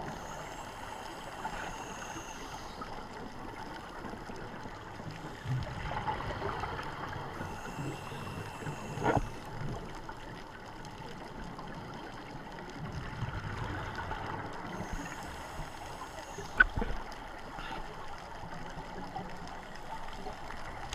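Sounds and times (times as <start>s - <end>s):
faint hiss: 0.0s - 6.0s, 7.1s - 9.9s, 13.7s - 18.1s
diver breathing and bubbles: 0.0s - 20.9s
muffled underwater ambience: 0.0s - 20.9s.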